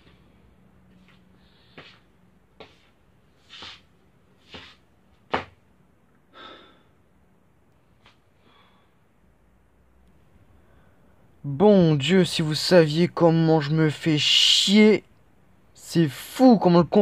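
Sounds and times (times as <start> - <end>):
person breathing heavily and sighing: 6.3 - 7.1, 8.3 - 9.1.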